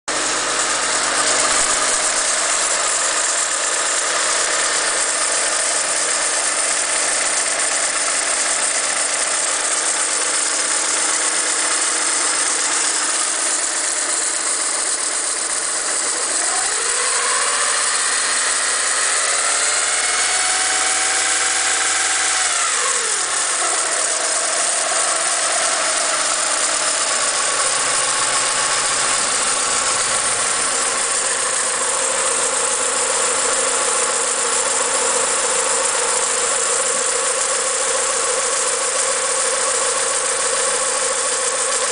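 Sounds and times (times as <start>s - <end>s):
car engine idling: 0.1s - 41.9s.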